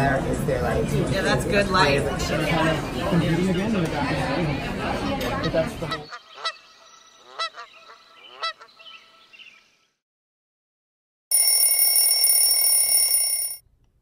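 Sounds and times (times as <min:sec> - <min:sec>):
phone alarm ringing: 0:11.3 - 0:13.6.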